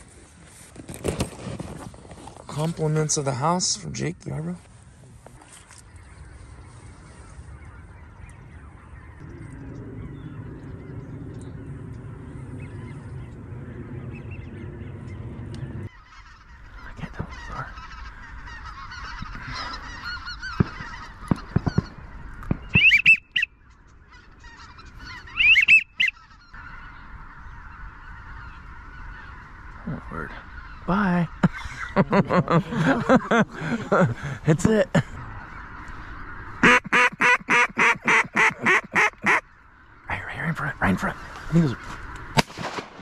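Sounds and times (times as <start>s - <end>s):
low steady rumble: 6.0s - 22.7s
geese honking: 12.1s - 42.4s.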